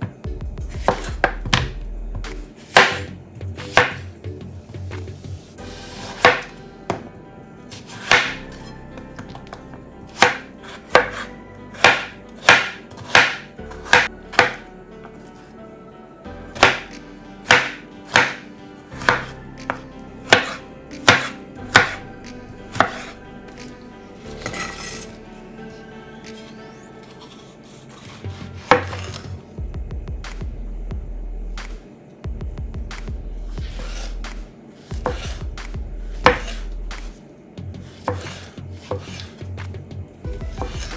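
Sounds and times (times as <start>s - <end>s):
knife chopping on cutting board: 0.7s - 1.8s, 2.6s - 4.0s, 5.8s - 7.1s, 7.7s - 8.5s, 10.1s - 14.6s, 16.6s - 22.0s, 22.7s - 23.6s, 27.2s - 29.4s, 33.5s - 37.1s, 37.8s - 39.4s, 40.4s - 40.9s.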